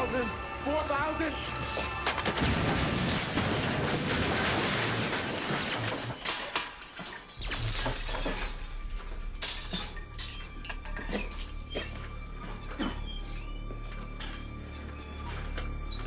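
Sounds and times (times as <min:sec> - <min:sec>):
glass and debris clinking: 0:02.4 - 0:13.2.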